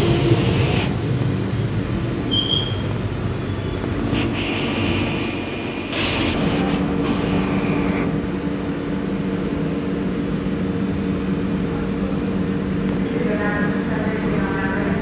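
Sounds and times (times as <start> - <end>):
train low hum: 0.0 - 15.0
train brake squeal: 1.6 - 4.1
air hiss: 4.1 - 6.4.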